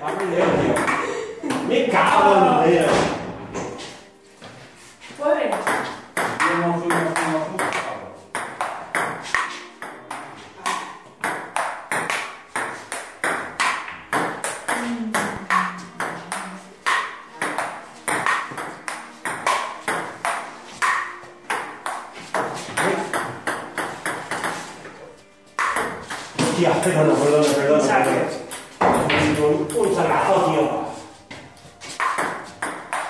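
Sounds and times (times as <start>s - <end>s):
ping pong ball clicking: 5.6s - 24.6s, 25.6s - 26.2s, 32.0s - 33.0s.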